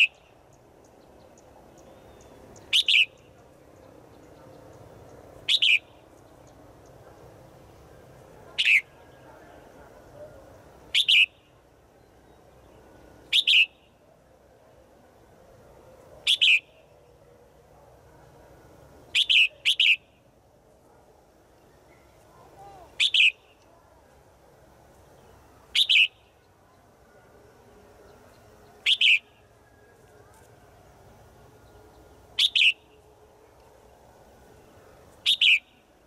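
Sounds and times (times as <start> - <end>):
bird giving sharp calls: 2.7 - 3.2, 5.5 - 5.9, 8.6 - 8.9, 10.9 - 11.4, 13.3 - 13.7, 16.3 - 16.7, 19.2 - 20.0, 22.6 - 23.5, 25.8 - 26.2, 28.8 - 29.3, 32.4 - 32.9, 35.2 - 35.7.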